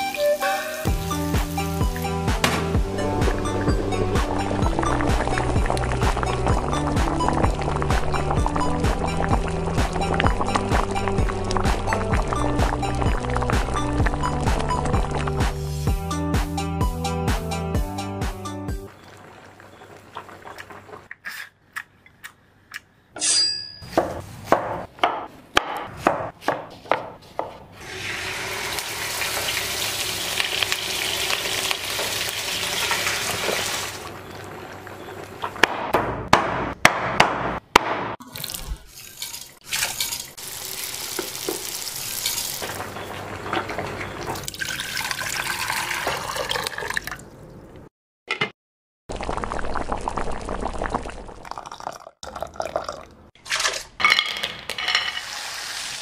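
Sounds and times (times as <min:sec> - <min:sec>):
sizzling in a pan: 0:00.0 - 0:02.2, 0:27.8 - 0:35.3, 0:38.9 - 0:44.2, 0:55.2 - 0:56.0
liquid pouring: 0:38.2 - 0:42.9, 0:44.2 - 0:47.3, 0:49.1 - 0:53.2.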